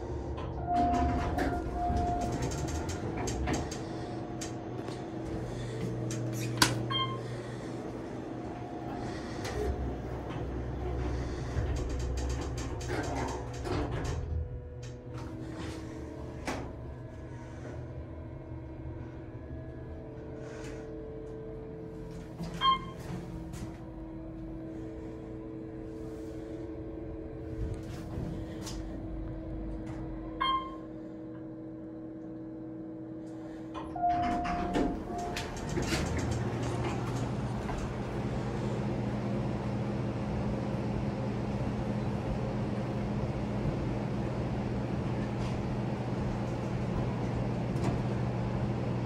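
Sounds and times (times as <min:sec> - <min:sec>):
low elevator hum: 0:00.0 - 0:49.0
elevator doors thudding shut: 0:00.4 - 0:07.5, 0:33.8 - 0:39.3
elevator chime: 0:00.6 - 0:02.8, 0:06.8 - 0:07.3, 0:22.4 - 0:23.2, 0:30.3 - 0:30.9, 0:33.8 - 0:36.0.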